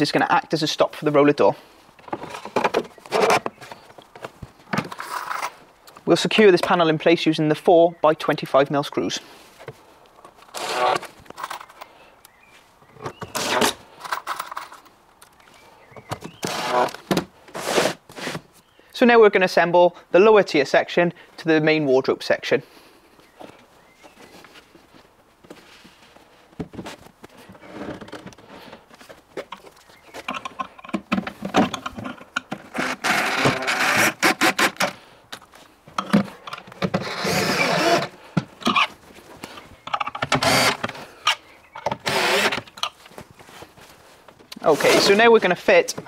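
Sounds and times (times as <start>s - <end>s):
wooden panels knocking and scraping: 2.0s - 5.5s, 29.4s - 35.0s
cordless drill driving screws: 10.5s - 11.1s, 13.3s - 13.8s, 16.4s - 17.0s, 32.7s - 35.0s, 37.0s - 38.1s, 40.3s - 40.9s, 42.0s - 42.7s.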